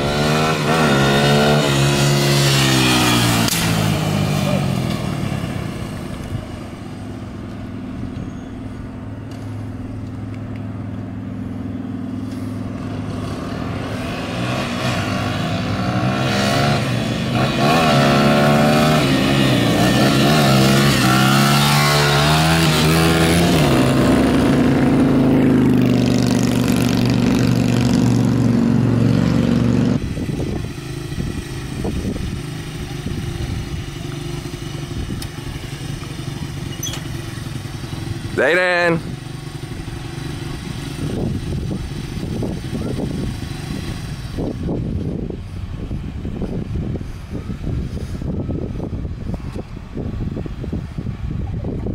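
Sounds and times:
dirt bike engine revving: 0.0 - 5.8, 12.3 - 45.2.

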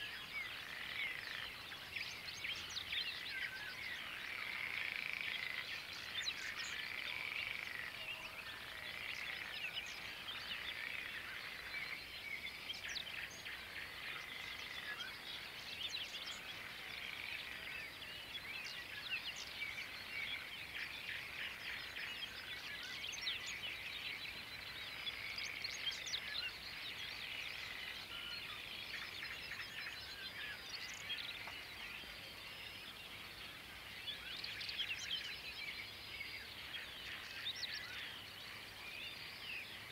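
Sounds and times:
birds singing and chirping: 0.0 - 39.9
frogs calling: 0.1 - 23.8.

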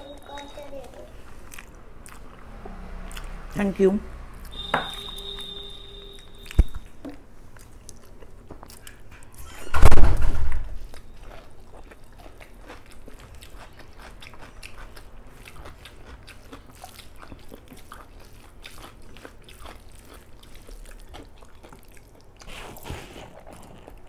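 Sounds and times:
wet chewing and mouth clicks: 0.1 - 3.4, 6.1 - 9.4, 10.6 - 24.0
loud thump: 9.8 - 10.7.

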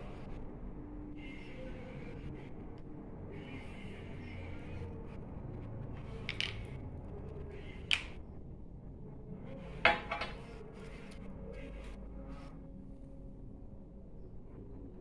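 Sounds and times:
steady low hum: 0.0 - 15.0
hard objects clinking: 6.3 - 6.6.

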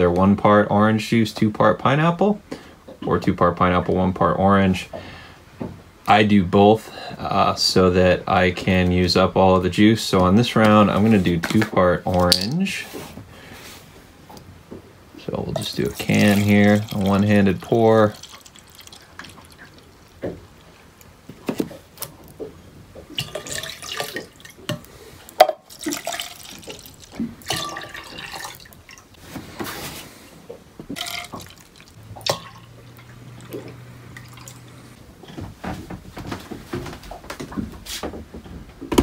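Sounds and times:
low steady hum: 0.0 - 37.5
juice pouring and splashing: 15.3 - 22.3, 23.0 - 30.0, 30.8 - 35.0.

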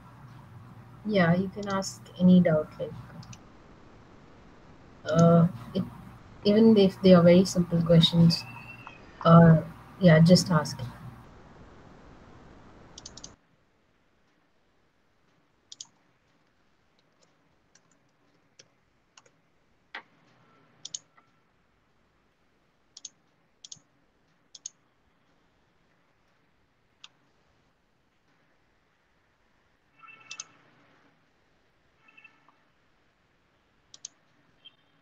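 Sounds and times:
faint low hiss: 0.0 - 35.0
short clicks: 13.0 - 13.4, 30.2 - 30.6.

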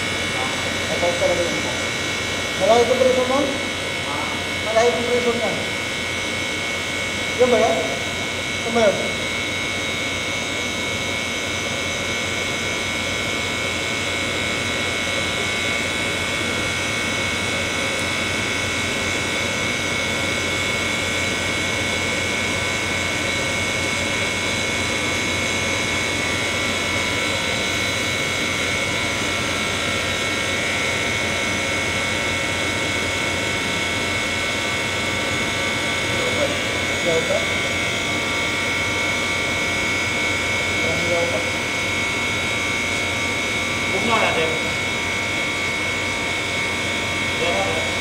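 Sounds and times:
machine hissing drone: 0.0 - 10.2
high whine: 0.0 - 48.0.

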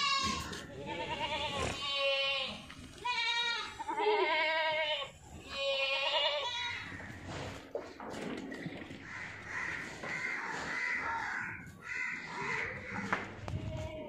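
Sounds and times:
goats bleating: 0.0 - 7.2, 11.0 - 14.0.

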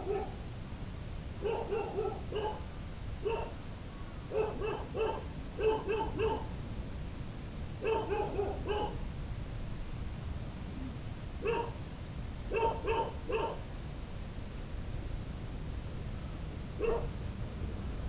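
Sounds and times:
dog barking: 0.0 - 0.4, 1.4 - 3.6, 4.3 - 6.5, 7.8 - 9.0, 11.4 - 11.8, 12.5 - 13.6, 16.8 - 17.2.

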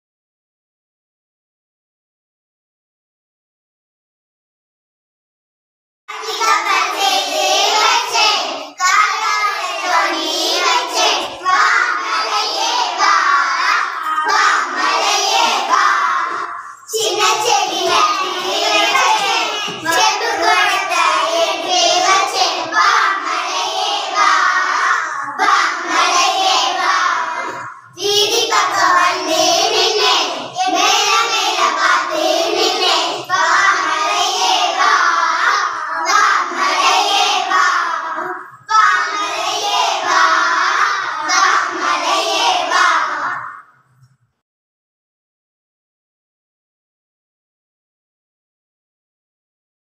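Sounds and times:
children singing: 6.1 - 43.9.

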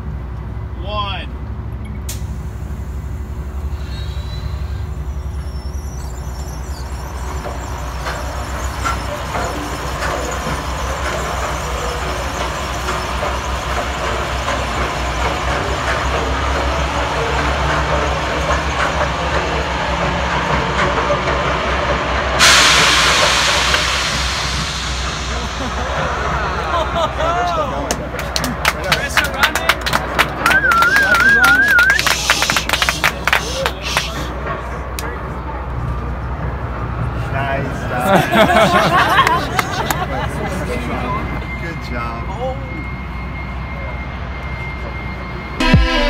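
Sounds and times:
low rumble with rattles: 0.0 - 33.0
loud hiss: 22.3 - 27.2.

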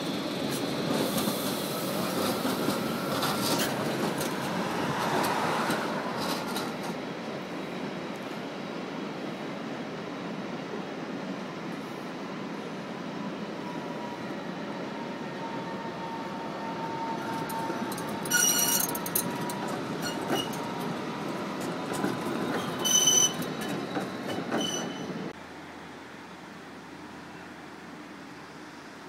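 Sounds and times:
tram wheels squealing on rails: 0.0 - 8.6, 12.0 - 25.4
tram running hum: 0.0 - 29.0.

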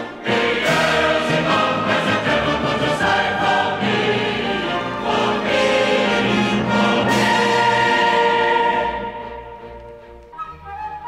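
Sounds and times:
choir singing with orchestra: 0.0 - 10.2.

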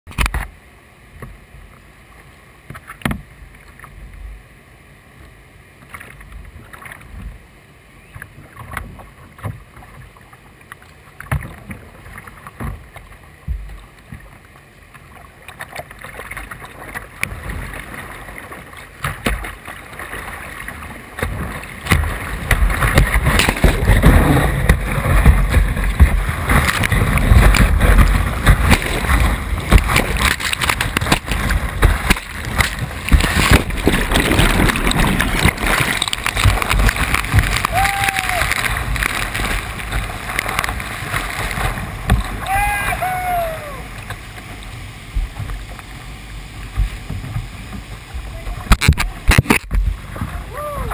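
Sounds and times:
paddle strokes splashing water: 5.8 - 7.4, 8.1 - 50.9
whitewater rushing: 19.6 - 50.9.

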